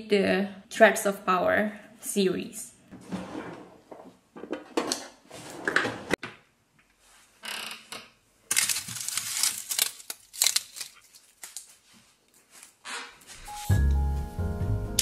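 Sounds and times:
mesh bag rustling and crinkling: 8.5 - 12.8.

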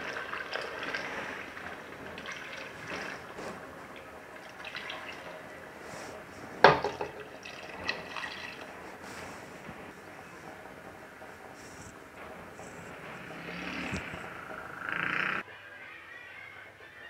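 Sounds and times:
water pouring into a pot: 0.0 - 5.7, 6.7 - 8.8.

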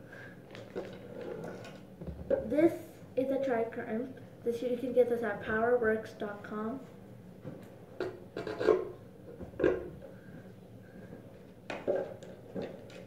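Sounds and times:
tools knocking and scraping: 8.0 - 10.0, 11.7 - 13.0.

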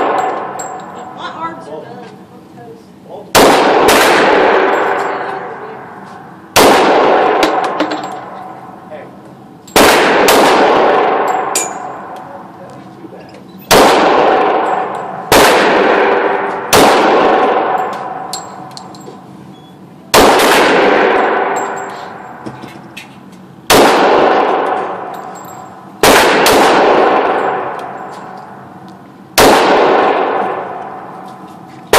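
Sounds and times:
handgun shots echoing: 6.6 - 8.5, 26.0 - 28.4.

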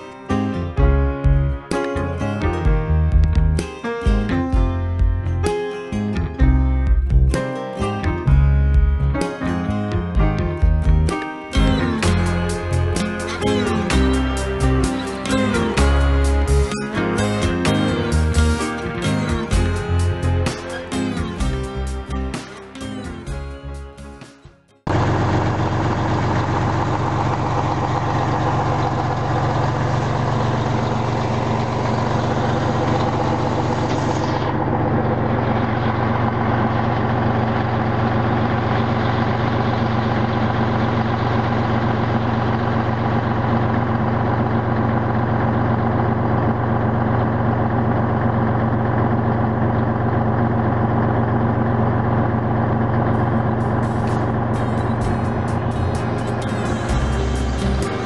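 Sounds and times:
diesel truck engine idling: 10.7 - 22.4, 24.9 - 58.0.

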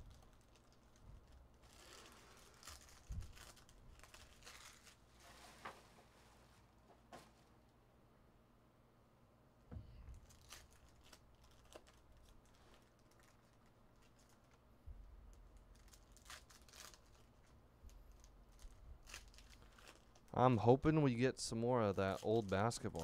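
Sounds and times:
foil card packs crinkling: 0.0 - 5.8, 10.1 - 20.4, 21.8 - 23.0.

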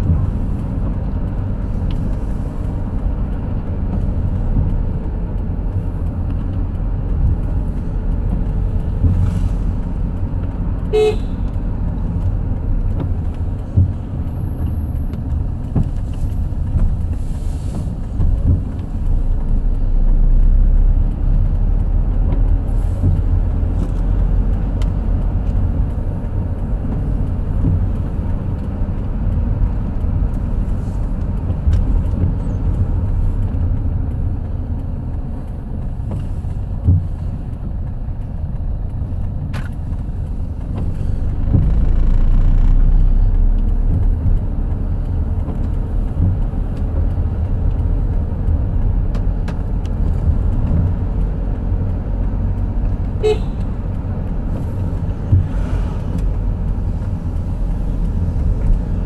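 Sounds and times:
road vehicle rumble: 0.0 - 59.0
horn toot: 10.9 - 11.4, 53.2 - 53.6.

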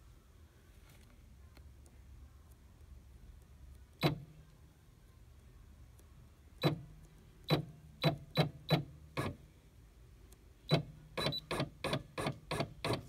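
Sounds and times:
embroidery machine clicks with hum: 3.7 - 4.4, 6.6 - 9.4, 10.7 - 13.0.

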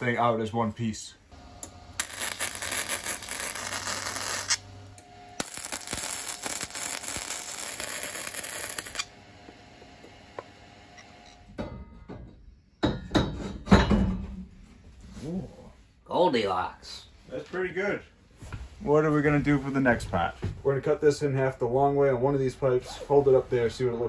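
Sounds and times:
arc welding crackle and sizzle: 1.4 - 11.4.

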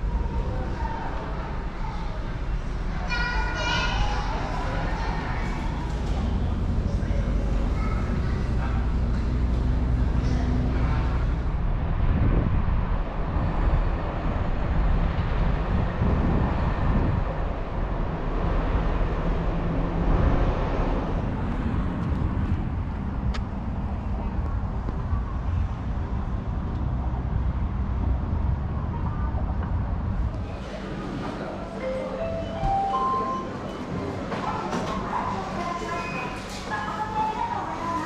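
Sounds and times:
road traffic: 0.0 - 38.0
wind rumbling on microphone: 3.8 - 31.3.

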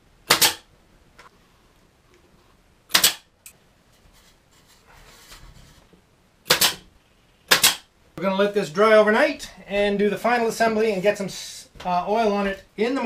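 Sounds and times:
pin nailer firing pop: 0.3 - 0.7, 2.9 - 3.2, 6.5 - 6.8, 7.5 - 7.9
faint rustle: 3.8 - 6.0.

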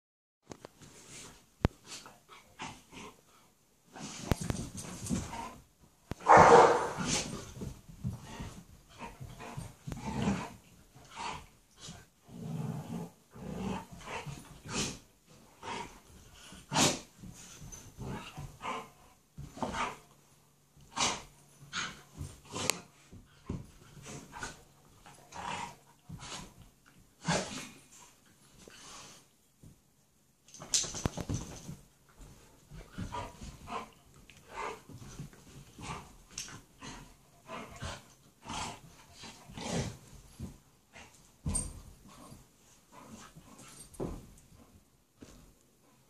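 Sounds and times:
dogs barking: 6.3 - 7.0.

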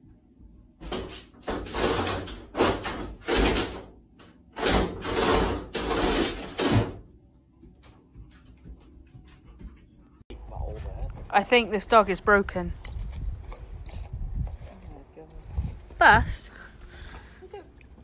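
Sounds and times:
door scraping and rattling: 0.8 - 3.9, 4.5 - 7.1.

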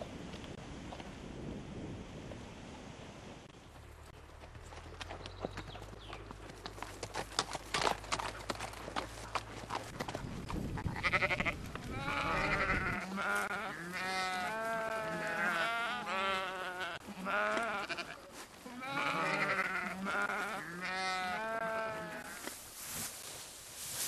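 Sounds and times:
bleating animal calls: 10.9 - 22.4.

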